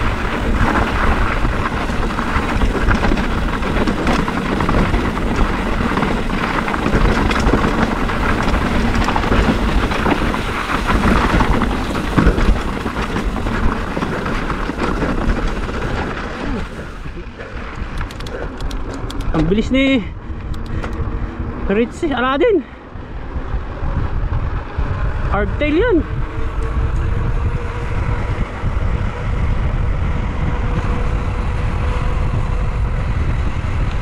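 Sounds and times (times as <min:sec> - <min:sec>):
tyres crunching over gravel: 0:00.0 - 0:20.9
bike rattling over stones: 0:00.0 - 0:22.7
low rumble on microphone: 0:00.0 - 0:34.0.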